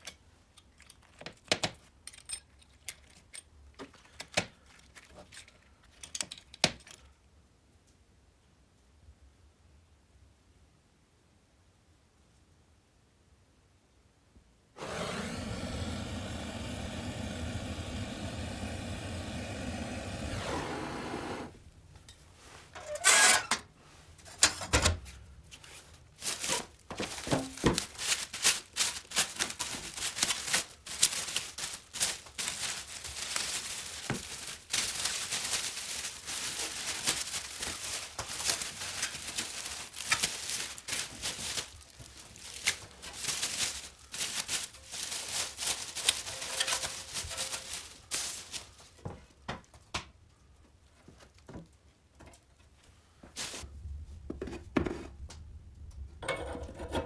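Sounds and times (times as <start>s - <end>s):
plastic wrap crinkling and tearing: 25.7s - 49.1s, 53.4s - 53.7s.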